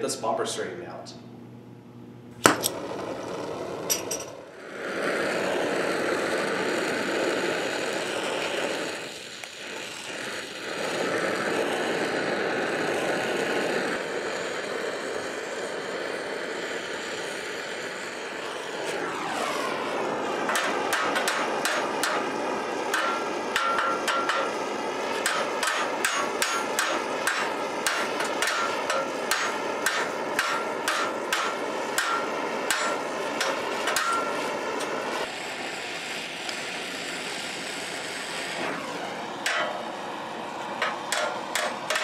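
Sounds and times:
torch flame hissing: 0:02.3 - 0:42.0
sharp pops: 0:18.4 - 0:35.3
hammer blows on hot steel: 0:20.4 - 0:35.3, 0:39.4 - 0:42.0.

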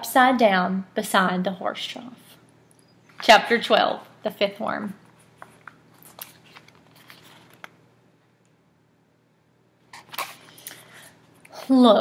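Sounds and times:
paper rustle: 0:05.1 - 0:07.8.

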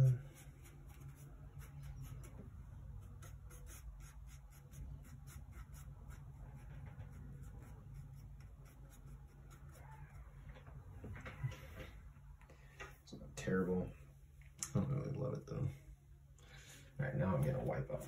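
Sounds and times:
paintbrush scrubbing on panel: 0:00.0 - 0:09.9.

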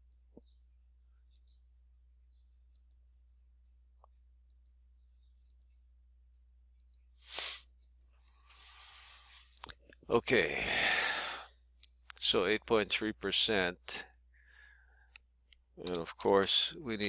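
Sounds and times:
mouse buttons clicking: 0:01.3 - 0:01.6, 0:02.7 - 0:03.0
short hiss: 0:07.2 - 0:07.7, 0:08.5 - 0:09.5.

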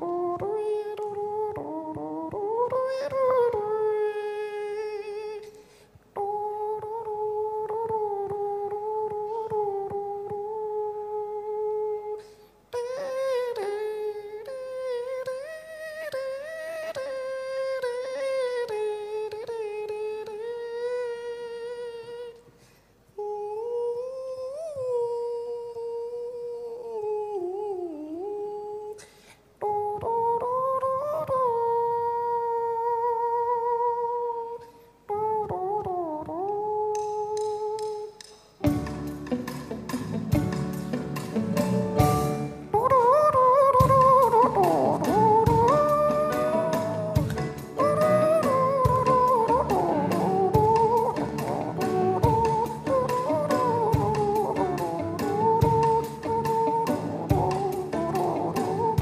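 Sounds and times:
man humming sliding notes: 0:43.8 - 0:59.0.

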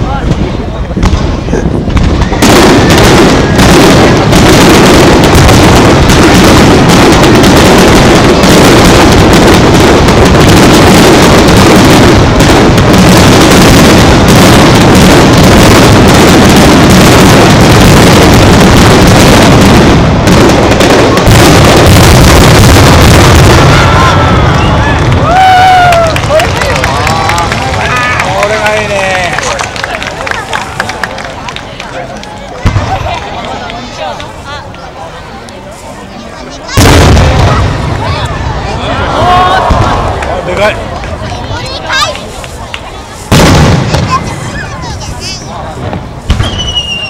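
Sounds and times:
firework shells bursting: 0:01.9 - 0:25.3, 0:45.9 - 0:47.0.

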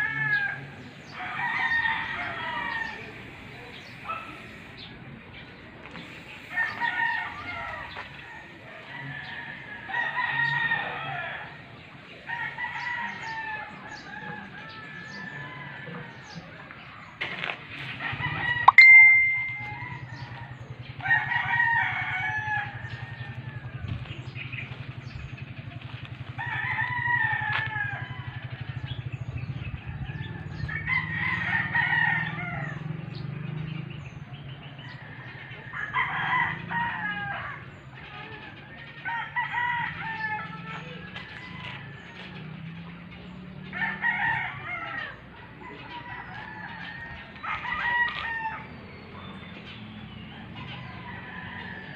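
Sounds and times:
rooster crowing: 0:00.0 - 0:03.2, 0:06.5 - 0:11.6, 0:26.4 - 0:28.7, 0:43.7 - 0:48.7, 0:50.7 - 0:51.9.

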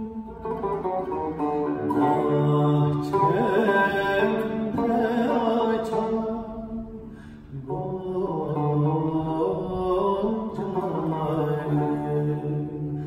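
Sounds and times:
long-necked lute: 0:00.0 - 0:13.0
man singing: 0:01.6 - 0:13.0.

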